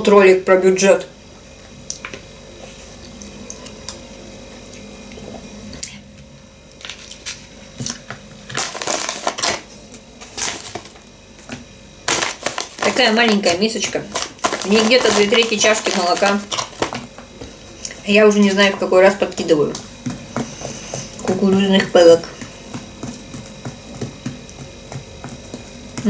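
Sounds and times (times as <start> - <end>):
plastic snack bag rustling: 6.8 - 24.6.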